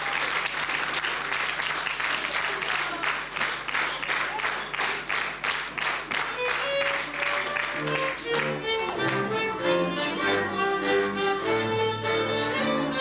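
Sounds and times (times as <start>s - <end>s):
audience applauding: 0.0s - 9.5s
rhythmic clapping in unison: 0.0s - 9.8s.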